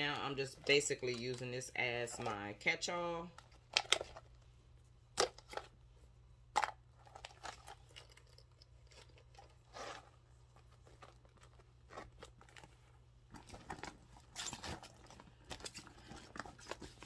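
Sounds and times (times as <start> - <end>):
bag rustle: 8.8 - 17.0.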